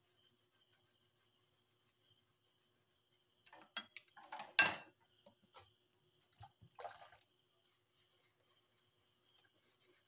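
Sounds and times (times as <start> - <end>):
sponge scrubbing: 0.0 - 3.2, 5.9 - 10.0
dishes clinking in a steel sink: 3.5 - 5.0.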